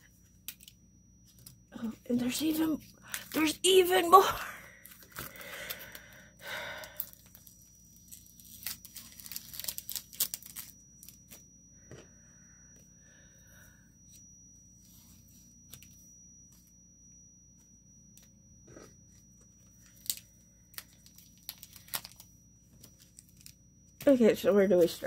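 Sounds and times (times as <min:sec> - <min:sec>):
small clicks and crinkles: 0:00.1 - 0:03.6, 0:04.8 - 0:06.1, 0:06.8 - 0:12.1, 0:17.6 - 0:24.1
packaging rustling and tearing: 0:07.0 - 0:11.2, 0:19.8 - 0:22.2.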